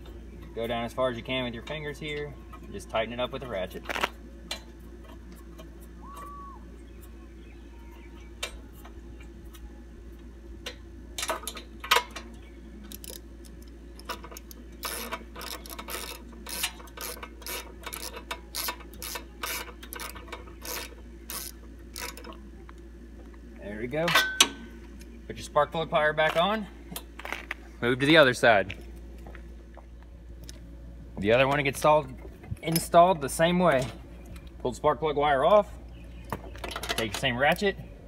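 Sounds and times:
ratchet clicking: 0:12.9 - 0:22.4.

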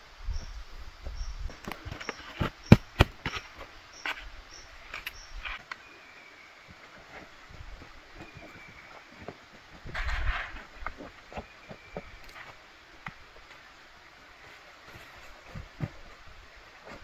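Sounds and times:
thin steady insect trill: 0:00.0 - 0:09.8
insects chirping: 0:00.0 - 0:17.0
sharp knocks and rustles: 0:01.4 - 0:04.3, 0:07.0 - 0:13.6.

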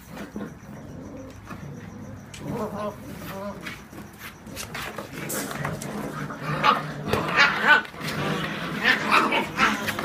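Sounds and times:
paws scuffling: 0:02.3 - 0:10.0
puppies crying: 0:05.0 - 0:10.0.

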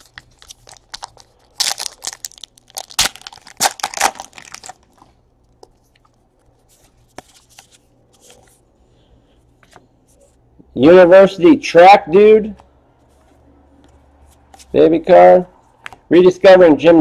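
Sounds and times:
wrapper crinkling and tearing: 0:00.0 - 0:05.2.

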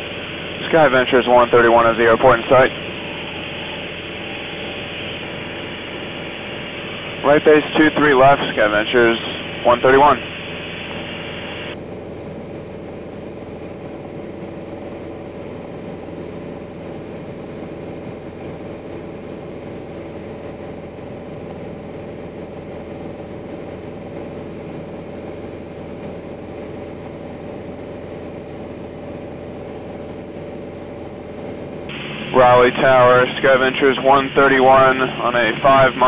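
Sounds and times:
aircraft engine and propeller droning: 0:00.0 - 0:36.0.

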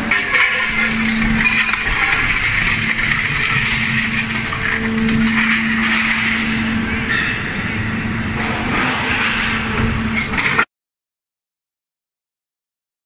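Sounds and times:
hydraulic power unit humming: 0:00.0 - 0:10.6.

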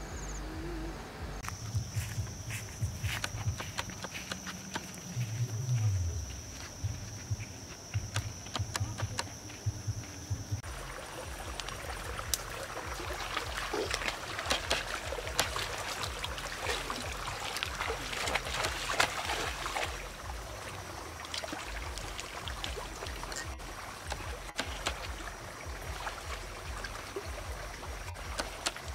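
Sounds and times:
footsteps through brush: 0:01.4 - 0:20.6
feet wading through water: 0:01.4 - 0:28.9.

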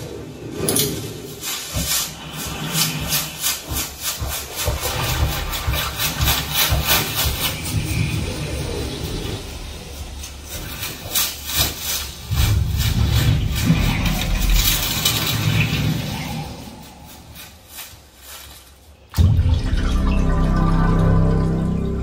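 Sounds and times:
quick scraping strokes: 0:00.5 - 0:19.1
deep rumble: 0:19.1 - 0:22.0.

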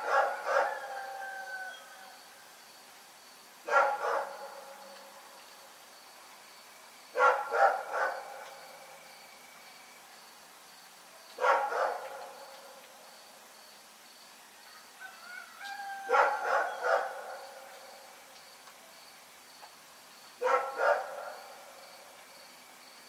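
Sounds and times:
dog barking: 0:00.0 - 0:01.0, 0:03.7 - 0:04.8, 0:07.2 - 0:08.5, 0:11.4 - 0:12.4, 0:16.1 - 0:17.5, 0:20.4 - 0:21.4.

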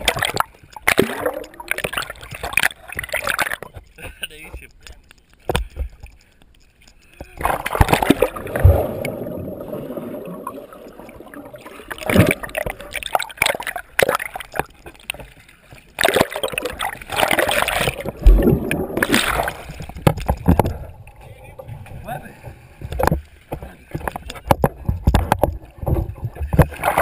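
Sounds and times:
water splashing around swimmer: 0:07.4 - 0:20.9
water washing over microphone: 0:15.8 - 0:27.0.

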